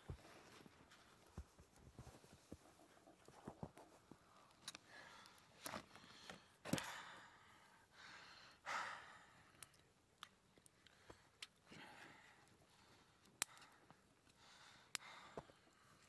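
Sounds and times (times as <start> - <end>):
faint handling rustles: 0.0 - 4.9.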